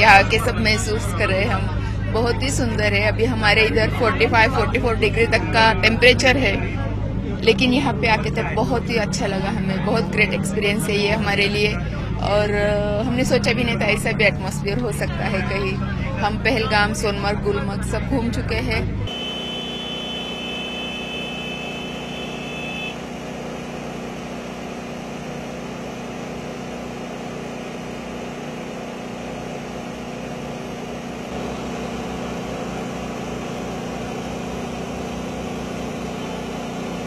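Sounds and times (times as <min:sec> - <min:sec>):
speedboat engine running: 0:00.0 - 0:37.0
thin high whine: 0:19.1 - 0:29.6.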